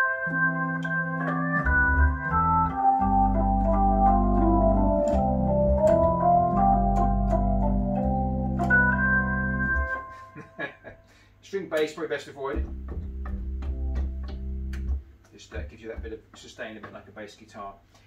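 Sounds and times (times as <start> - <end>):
organ chords: 0.0 - 11.3, 12.5 - 15.2
deep sustained organ bass: 0.3 - 10.7, 12.5 - 15.0.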